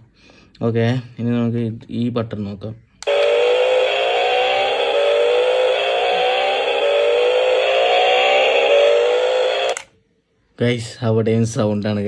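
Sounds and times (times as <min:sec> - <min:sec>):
electronic engine revving effect: 0:03.0 - 0:09.9.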